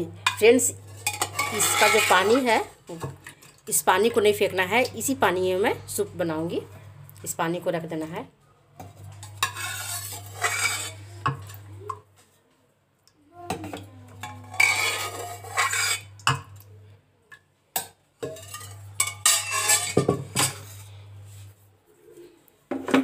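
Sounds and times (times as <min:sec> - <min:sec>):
spoon scraping a metal pot: 0:00.2 - 0:03.8, 0:08.8 - 0:11.7, 0:13.6 - 0:16.6, 0:18.2 - 0:21.0.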